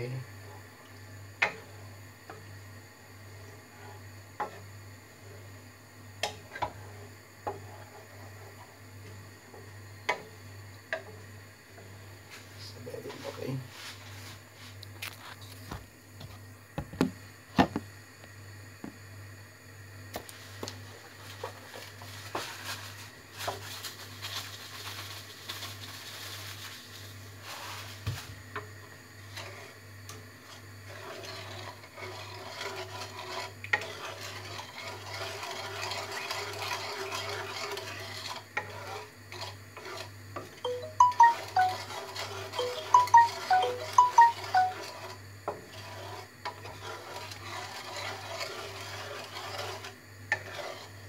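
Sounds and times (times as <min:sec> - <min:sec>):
wooden spatula scraping metal pan: 0:29.3 - 0:29.8, 0:30.4 - 0:40.1, 0:44.6 - 0:51.0.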